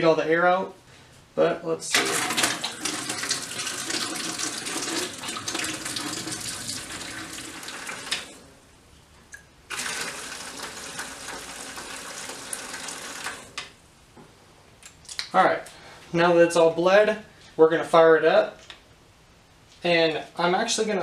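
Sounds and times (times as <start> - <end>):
water flowing into plastic bucket: 2.0 - 8.4, 9.7 - 13.6.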